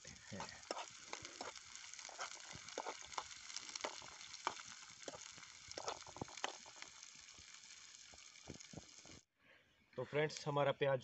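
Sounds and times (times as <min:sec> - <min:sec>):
onions sizzling in frying pan: 0:00.0 - 0:09.3
metal spoon scraping pan: 0:00.3 - 0:06.6.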